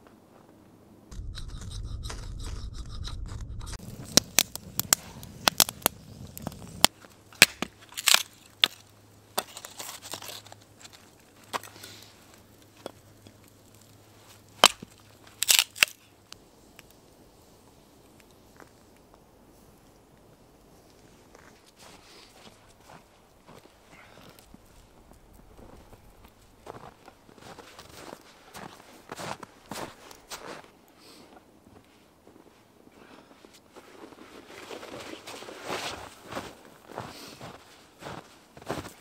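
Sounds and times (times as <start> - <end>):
low rumble: 1.1 - 6.9
sharp snaps and cracks: 1.1 - 17.0.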